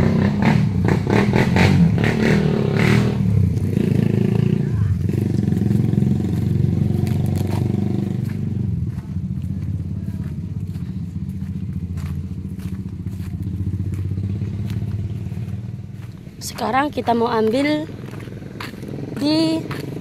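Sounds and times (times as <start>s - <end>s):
engine humming steadily: 0.0s - 20.0s.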